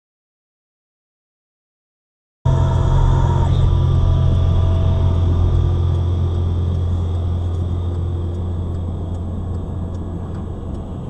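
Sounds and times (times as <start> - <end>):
car engine drone from inside: 2.5 - 11.0
faint ticking: 4.7 - 11.0.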